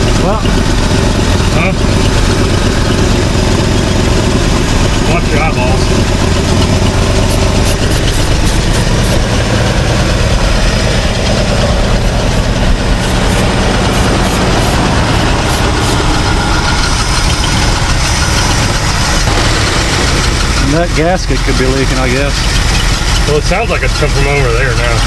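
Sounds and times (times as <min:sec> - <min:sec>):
truck engine idling: 0:00.0 - 0:25.0
aerosol spray bursts: 0:07.2 - 0:09.2, 0:12.1 - 0:16.0.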